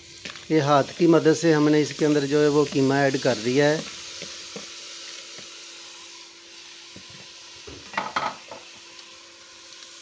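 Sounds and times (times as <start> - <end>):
meat sizzling in a pot: 0.0 - 10.0
spoon scraping and knocking a pot: 7.7 - 8.6.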